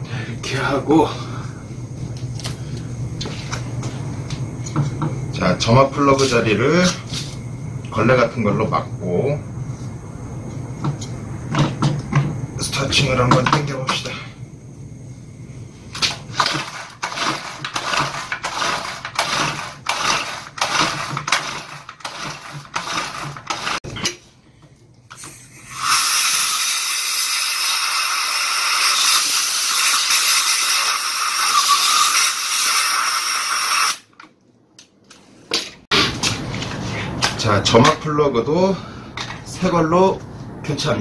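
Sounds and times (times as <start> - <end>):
recoil starter cranking engine: 16.0 - 23.8
compressed air blow gun hissing: 25.1 - 34.0.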